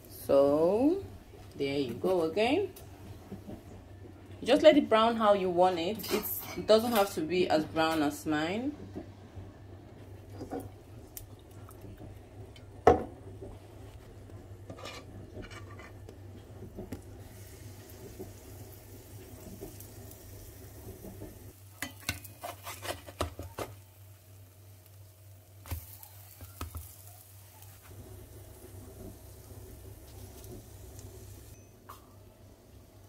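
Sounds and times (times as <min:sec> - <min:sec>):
utensils clattering against pan: 0:05.9 - 0:07.2
pancakes sizzling in frying pan: 0:16.8 - 0:31.6.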